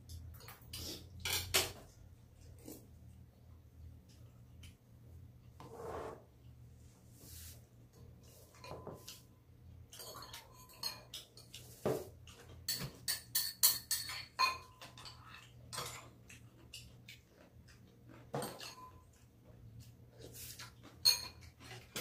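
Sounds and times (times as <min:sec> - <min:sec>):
metal spoons clinking on bowls: 0:08.5 - 0:09.2, 0:09.9 - 0:11.7, 0:12.4 - 0:16.9, 0:18.3 - 0:19.2, 0:21.0 - 0:22.0.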